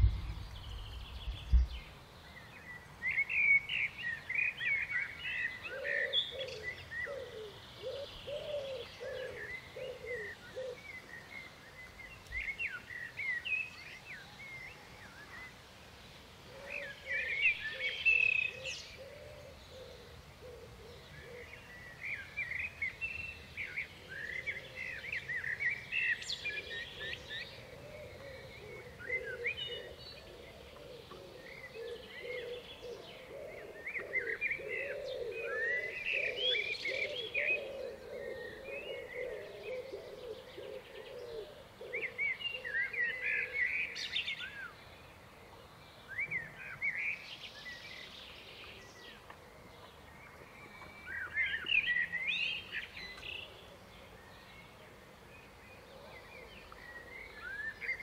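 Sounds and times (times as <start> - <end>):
low wavering sound: 0.0 - 1.7
songbirds twittering and chirping: 0.0 - 58.0.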